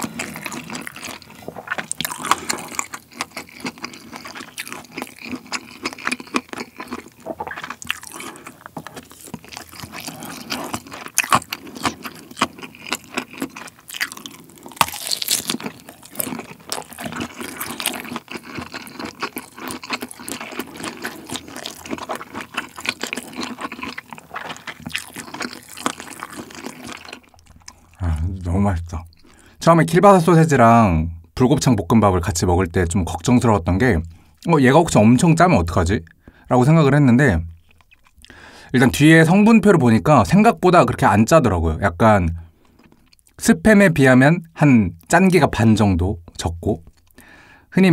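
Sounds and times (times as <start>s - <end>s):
mouth chewing smacks and clicks: 0.0s - 28.0s, 37.5s - 38.4s, 42.6s - 43.4s, 46.8s - 47.2s.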